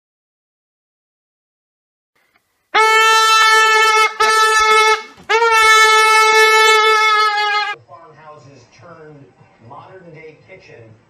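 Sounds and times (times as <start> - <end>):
horn blasts: 2.8 - 7.8.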